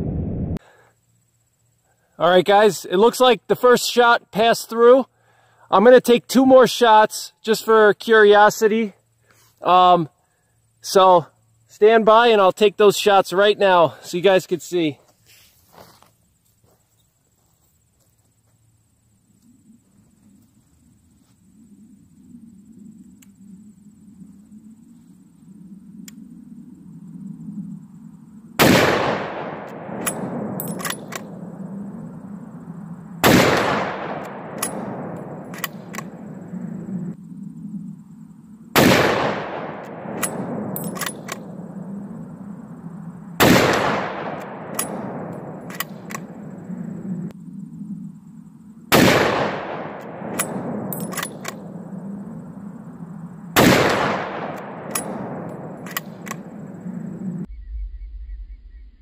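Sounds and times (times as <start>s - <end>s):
rifle shots with rolling echo: 28.6s - 37.2s, 38.7s - 47.2s, 48.9s - 57.4s
rifle bolt clicks: 30.0s - 31.3s, 35.5s - 36.1s, 40.2s - 41.4s, 45.7s - 46.3s, 50.4s - 51.6s, 55.8s - 56.4s.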